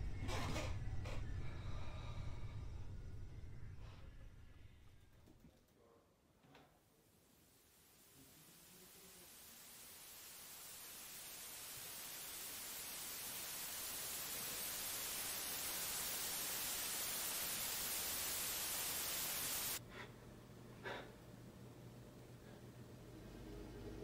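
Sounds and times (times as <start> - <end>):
static hiss: 6.9 - 19.8.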